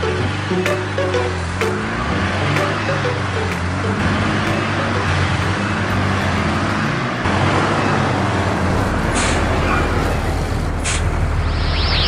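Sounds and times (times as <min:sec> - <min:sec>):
car engines running: 0:00.0 - 0:12.0
short hiss: 0:09.2 - 0:09.4, 0:10.8 - 0:11.2.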